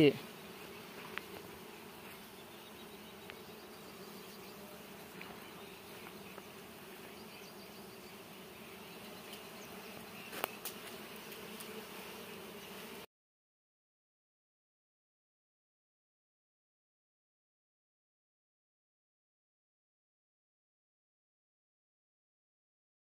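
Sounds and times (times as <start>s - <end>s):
bees buzzing: 0.0s - 13.1s.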